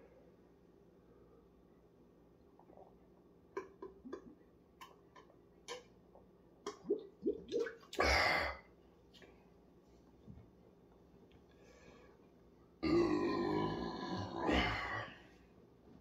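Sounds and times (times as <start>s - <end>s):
person gulping a drink: 2.4s - 8.6s.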